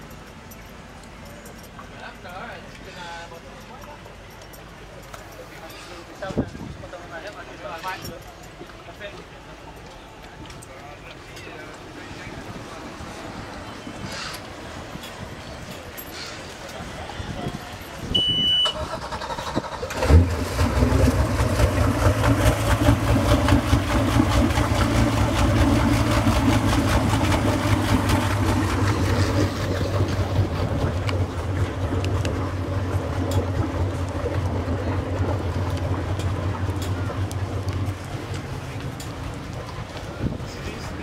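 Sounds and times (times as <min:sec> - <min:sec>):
motorboat engine starting and idling: 0:16.2 - 0:41.0.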